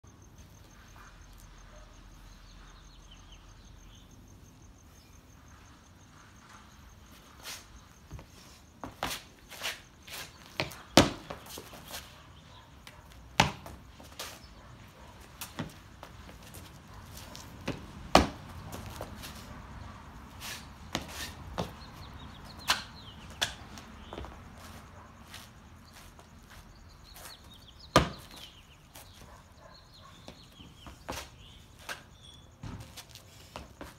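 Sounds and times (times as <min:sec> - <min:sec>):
cricket chirping: 0:00.0 - 0:33.9.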